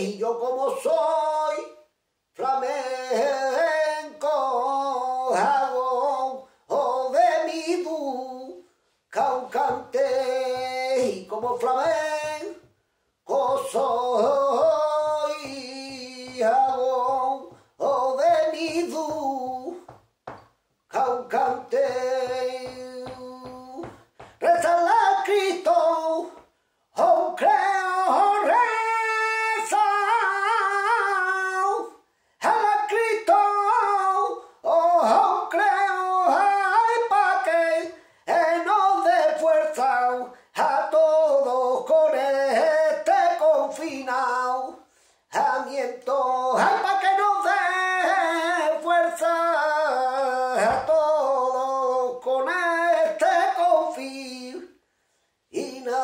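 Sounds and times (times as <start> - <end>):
man singing unaccompanied: 0.0 - 54.8, 55.5 - 56.0
hand rapping on a table: 9.2 - 31.9, 32.5 - 44.8, 45.4 - 51.3
man breathing: 17.5 - 17.8, 24.0 - 24.4, 32.0 - 32.4, 38.0 - 38.3, 40.3 - 40.6, 44.8 - 45.3, 54.8 - 55.5.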